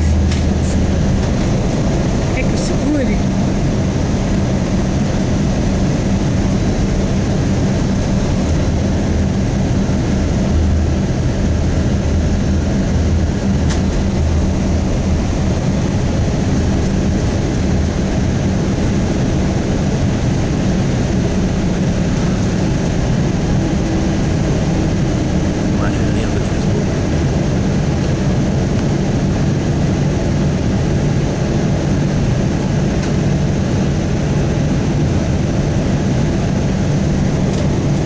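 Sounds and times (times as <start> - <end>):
airliner engines rumbling: 0.0 - 38.0
low cabin hum: 0.0 - 38.0
rushing air: 0.0 - 38.0.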